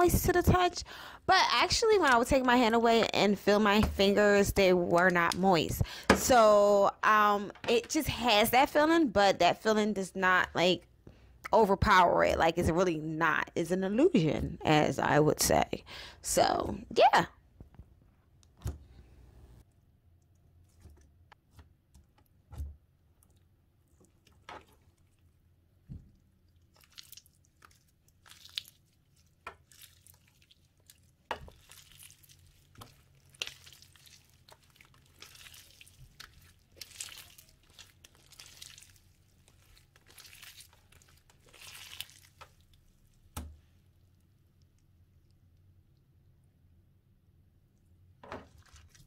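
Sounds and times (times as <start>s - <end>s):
slime crackly squelches: 23.0s - 45.6s, 48.4s - 49.0s.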